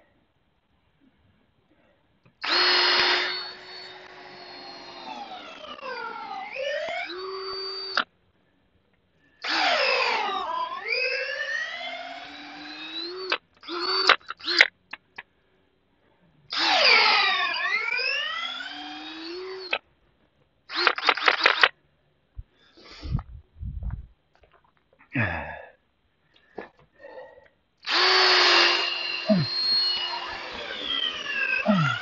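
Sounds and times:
power drill boring into wood: 2.4 - 8.0, 9.4 - 14.7, 16.5 - 19.8, 20.7 - 21.7, 27.8 - 32.0
low thumps: 22.4 - 24.2.

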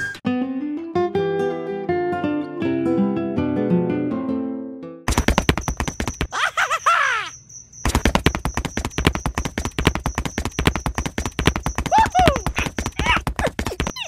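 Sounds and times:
fast sharp clicks: 5.1 - 6.3.

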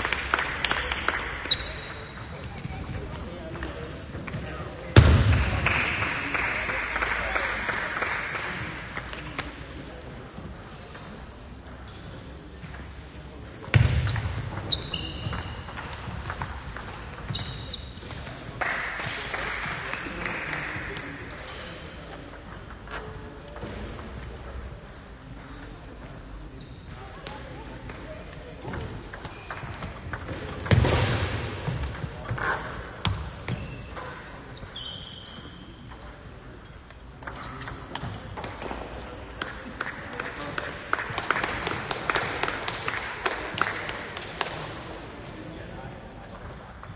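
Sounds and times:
shoes squeaking on floor: 1.4 - 3.0, 13.7 - 15.9, 16.8 - 18.1, 32.4 - 35.8, 37.2 - 38.1.

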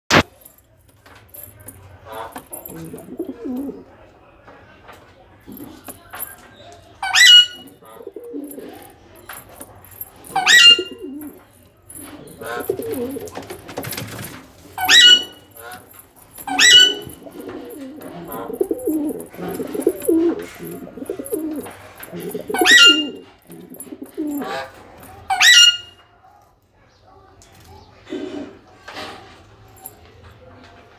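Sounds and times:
pigeon cooing: 2.1 - 4.0, 7.0 - 9.0, 10.2 - 11.4, 12.0 - 14.2, 14.8 - 15.8, 16.4 - 24.8, 28.0 - 28.7.

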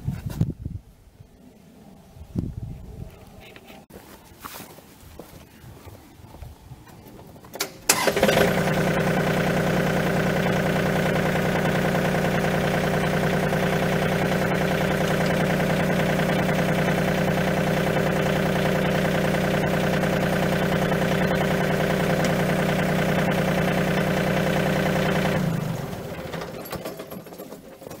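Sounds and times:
diesel tractor engine idling: 7.9 - 28.0.

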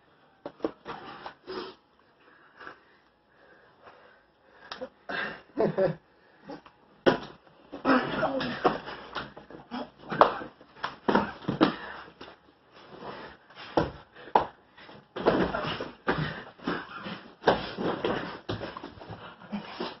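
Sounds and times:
heavy breathing and grunting: 7.8 - 10.6
bodies thumping on mats: 10.1 - 11.9, 15.1 - 19.1.

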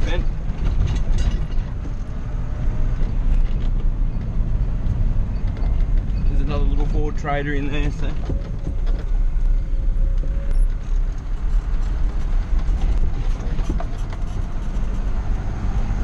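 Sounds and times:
truck engine drone: 0.0 - 16.0.

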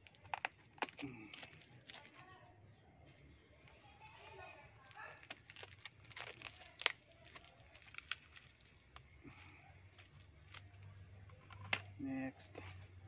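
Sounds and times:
tape crinkling and tearing: 0.0 - 2.4, 4.8 - 11.9.

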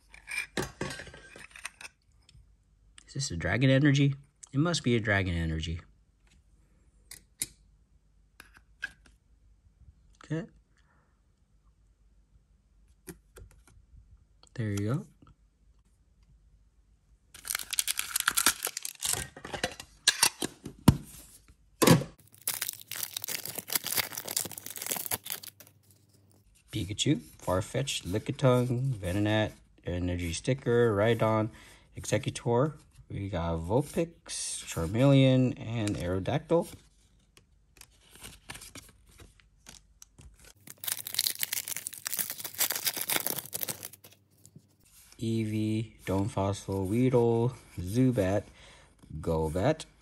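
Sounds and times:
foil being torn open: 17.4 - 19.2, 22.2 - 25.7, 40.6 - 44.2
foil pack crinkling: 17.4 - 19.3, 22.2 - 26.1, 40.5 - 44.6.

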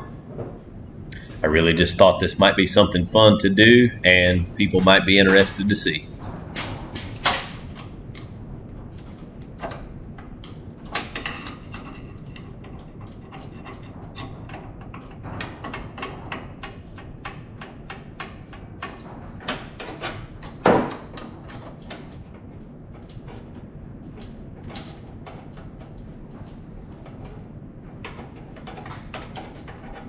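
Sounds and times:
light clicks and clanks of parts: 9.0 - 30.0.

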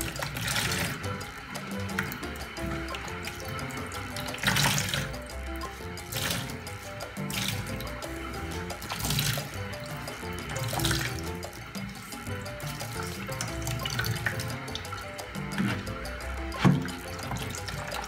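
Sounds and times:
background music: 0.0 - 18.0
liquid splashing into plastic basin: 0.1 - 1.0, 4.2 - 5.2.

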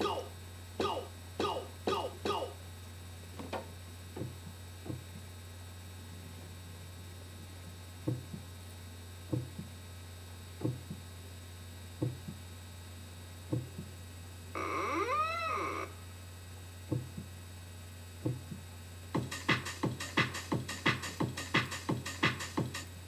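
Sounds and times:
steady electrical hum: 0.0 - 23.0
soft paired thumps: 3.4 - 5.3, 8.0 - 8.5, 9.3 - 9.7, 10.6 - 11.0, 12.0 - 12.4, 13.5 - 13.9, 16.9 - 17.3, 18.2 - 18.6
wavering meow-like call: 14.6 - 16.0.

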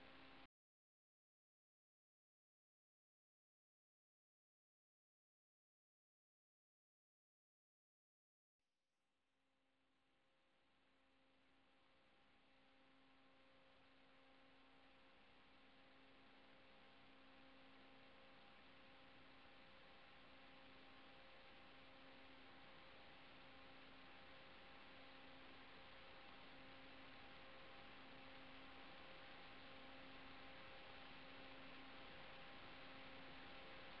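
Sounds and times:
faint electrical hum with hiss: 0.0 - 0.5, 10.4 - 34.0.

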